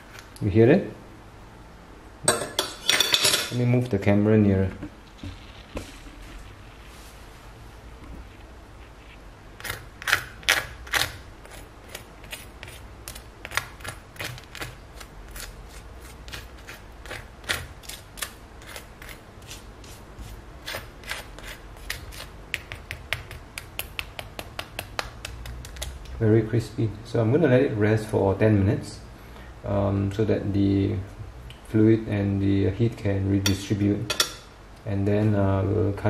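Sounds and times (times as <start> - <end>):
spoon tapping crispy chicken skin: 22.5 - 26.2.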